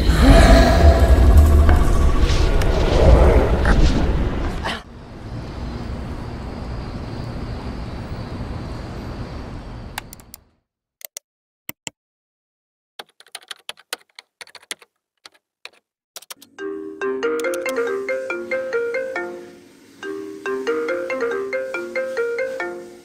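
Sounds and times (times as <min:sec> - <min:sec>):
steady background noise: 0:00.0 - 0:10.4, 0:16.4 - 0:23.0
sharp clicks: 0:10.0 - 0:10.4, 0:13.4 - 0:16.5.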